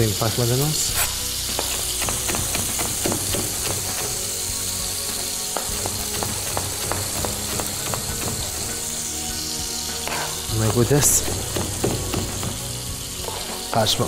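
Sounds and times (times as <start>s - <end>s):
tomatoes sizzling in a frying pan: 0.0s - 14.0s
knife chopping on a cutting board: 1.5s - 4.2s, 5.5s - 8.7s, 10.0s - 13.4s.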